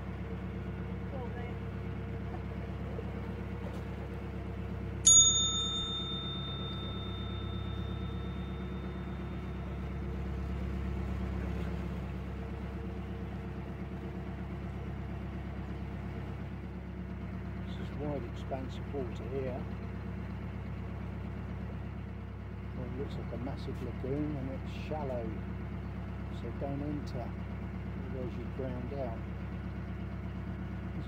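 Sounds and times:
boat engine running: 0:00.0 - 0:31.0
sharp metallic ding: 0:05.1 - 0:10.0.

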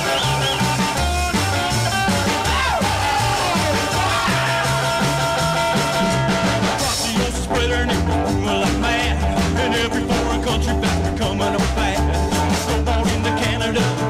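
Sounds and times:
music with repeating bass beat: 0:00.0 - 0:14.0
person singing: 0:02.2 - 0:14.0.

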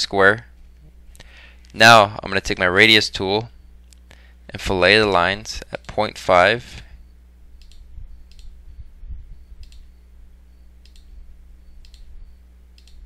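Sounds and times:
low electrical hum: 0:00.0 - 0:13.0
computer mouse clicking: 0:07.6 - 0:08.5, 0:09.6 - 0:09.9, 0:10.8 - 0:11.1, 0:11.8 - 0:12.1, 0:12.8 - 0:13.0.

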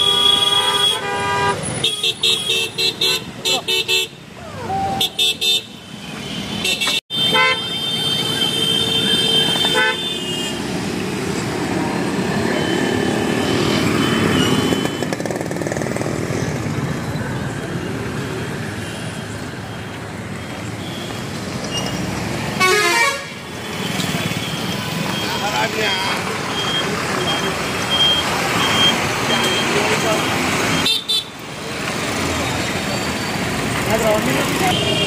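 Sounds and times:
vehicle horns honking: 0:00.0 - 0:04.2, 0:04.9 - 0:10.6, 0:22.6 - 0:31.4, 0:34.4 - 0:35.0
road traffic passing: 0:00.0 - 0:35.0.

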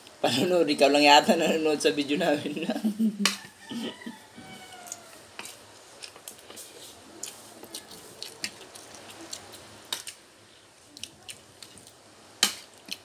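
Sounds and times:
quiet chewing: 0:03.7 - 0:12.0.

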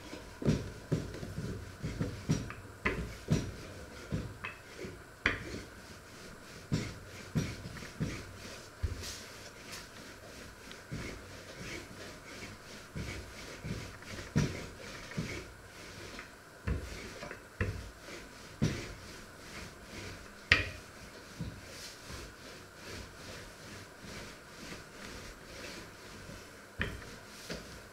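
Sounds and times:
rolling pin rolling dough: 0:00.0 - 0:27.9
rolling pin knocking on worktop: 0:00.4 - 0:04.6, 0:20.5 - 0:20.8, 0:26.8 - 0:27.1.

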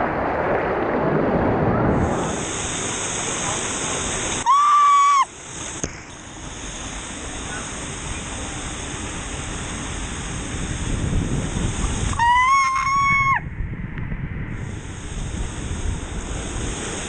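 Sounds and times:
water rushing and sloshing: 0:00.0 - 0:17.0
high steady squeal: 0:02.0 - 0:13.4.

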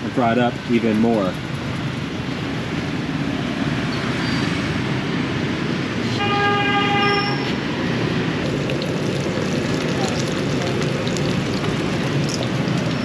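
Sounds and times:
street traffic noise: 0:00.0 - 0:13.0
vehicle horn honk: 0:06.2 - 0:07.6.

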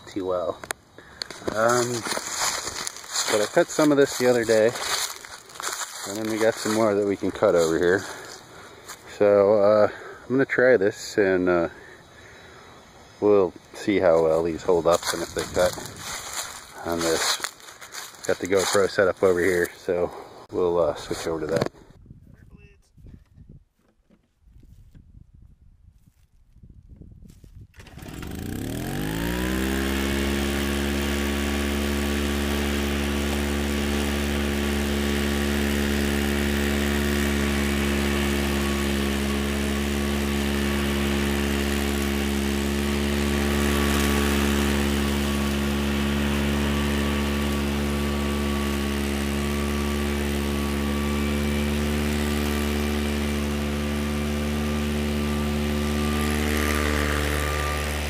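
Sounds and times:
mower engine running: 0:00.0 - 0:21.7, 0:27.8 - 0:58.0
mower engine pull-started: 0:01.0 - 0:10.2, 0:14.1 - 0:19.6, 0:27.7 - 0:58.0.

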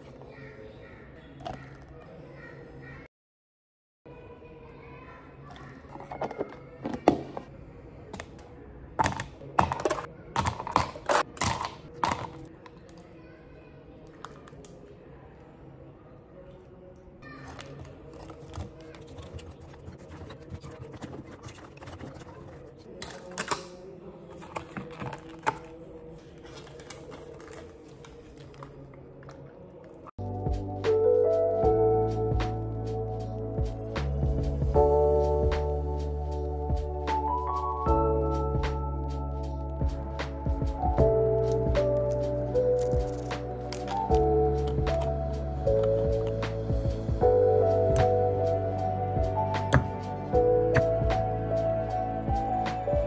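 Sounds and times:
plastic cups and lids clicking: 0:05.5 - 0:07.5, 0:09.0 - 0:13.0, 0:17.4 - 0:25.8.

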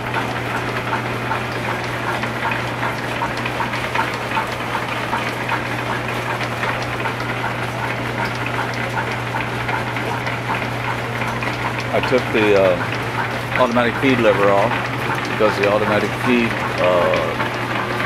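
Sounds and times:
belts and gearing ticking: 0:00.0 - 0:18.0
machinery low hum: 0:00.0 - 0:18.0.

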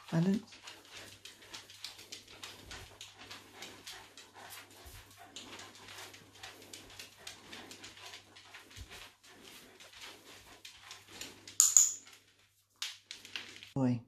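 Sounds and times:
dog claws clicking on tiles: 0:00.0 - 0:13.8.

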